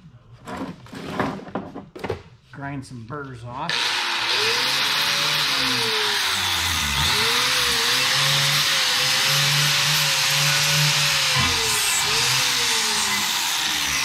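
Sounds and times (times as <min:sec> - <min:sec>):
angle grinder grinding steel: 0:03.7 - 0:14.0.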